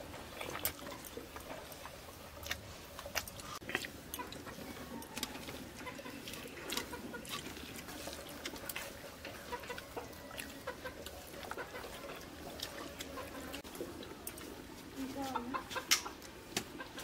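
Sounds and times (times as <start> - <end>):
people eating and chewing: 0.0 - 17.0
chickens clucking: 3.6 - 13.7, 15.2 - 17.0.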